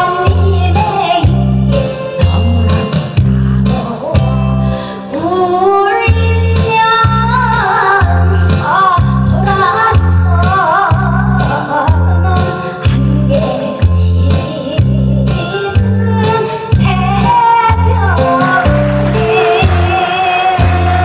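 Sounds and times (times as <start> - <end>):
woman singing into a microphone: 0.0 - 21.0
backing track with bass beat: 6.1 - 21.0.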